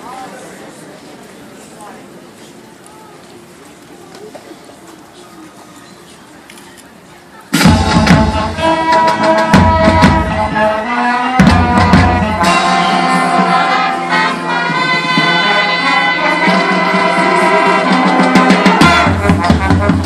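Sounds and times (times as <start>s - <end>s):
horns playing: 7.5s - 20.0s
marching percussion: 7.5s - 20.0s
heavy drum hits: 7.6s - 10.3s.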